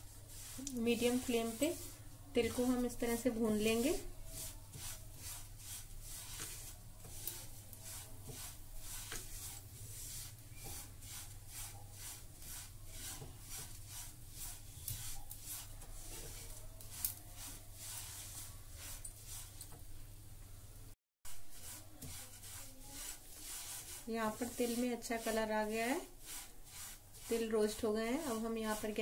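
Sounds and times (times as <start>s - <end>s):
spatula scraping a pan: 0.0s - 19.8s, 21.3s - 29.0s.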